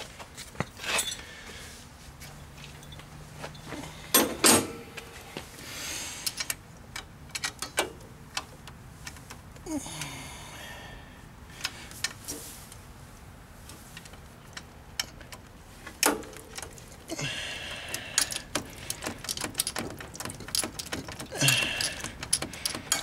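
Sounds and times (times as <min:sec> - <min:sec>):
ratchet clicking on bolts: 0:17.8 - 0:23.0.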